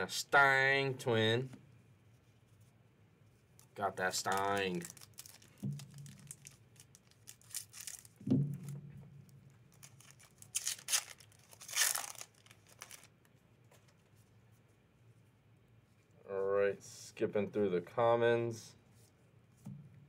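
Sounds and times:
foil wrapper tearing and crinkling: 0:04.0 - 0:08.2, 0:09.7 - 0:13.1
soft thump: 0:08.2 - 0:09.0.

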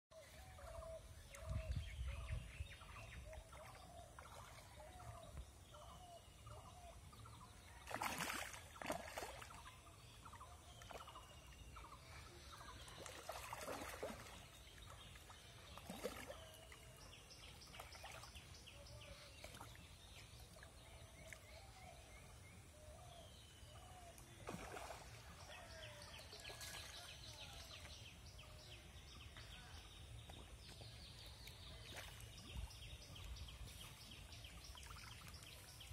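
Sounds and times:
fish splashing water: 0:07.8 - 0:09.6, 0:13.0 - 0:14.6, 0:24.4 - 0:25.4.

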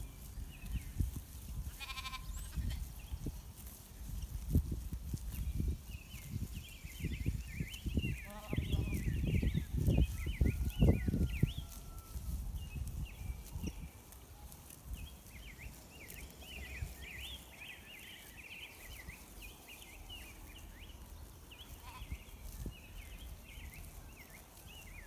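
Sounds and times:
wind rumble on microphone: 0:00.0 - 0:14.2, 0:20.5 - 0:25.0
small birds chirping: 0:00.0 - 0:25.0.

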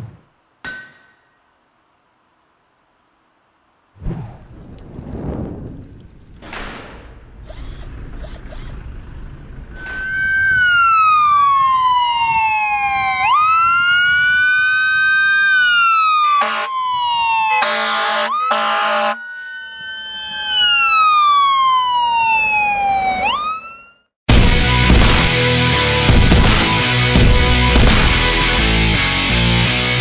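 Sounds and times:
fire truck siren wailing: 0:09.7 - 0:24.2
air horn blasts: 0:16.4 - 0:16.8, 0:17.6 - 0:19.3.

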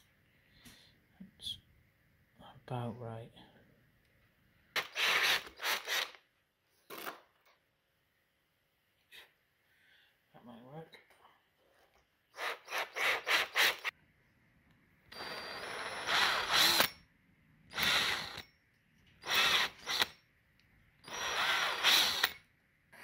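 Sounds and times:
power drill boring into wood: 0:04.8 - 0:06.2, 0:12.4 - 0:13.9, 0:15.1 - 0:17.0, 0:17.7 - 0:18.4, 0:19.2 - 0:20.2, 0:21.0 - 0:22.4.

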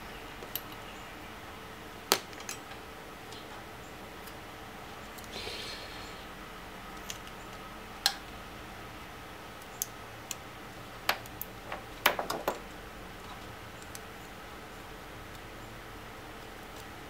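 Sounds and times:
faint hiss: 0:05.2 - 0:06.5.

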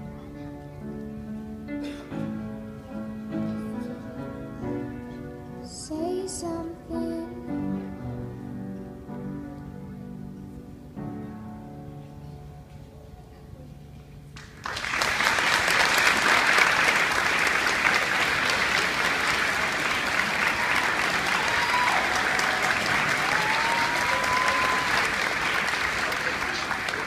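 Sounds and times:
audience applause: 0:14.4 - 0:27.0.

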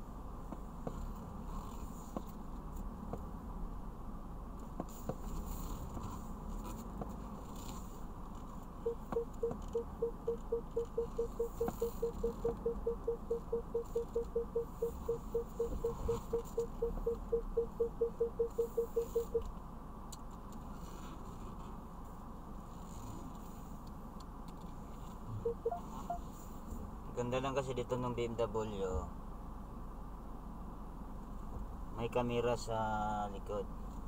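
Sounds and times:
parking sensor beeping: 0:08.8 - 0:19.5, 0:25.3 - 0:26.4.

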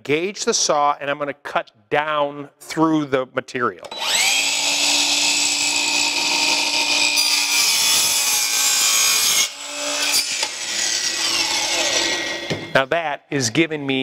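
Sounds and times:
miter saw whining: 0:03.9 - 0:12.7.

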